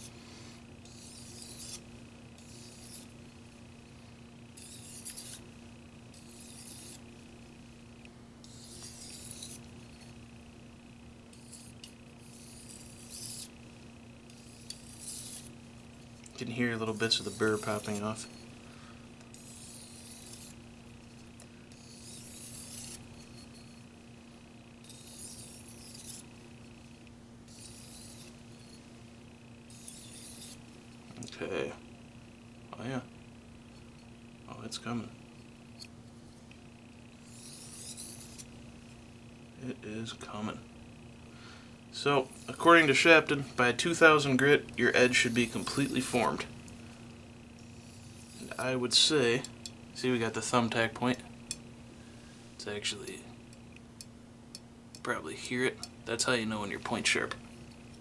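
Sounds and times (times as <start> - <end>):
knife scraping on whetstone: 0.8 - 1.8, 2.4 - 3.1, 4.6 - 5.4, 6.1 - 7.0, 8.4 - 10.2, 11.3 - 13.5, 14.3 - 15.5, 16.4 - 18.5, 19.3 - 20.6, 21.7 - 23.8, 24.8 - 26.3, 27.5 - 28.8, 29.7 - 30.6, 37.2 - 38.5, 42.3 - 43.0, 44.9 - 46.5, 47.6 - 49.6.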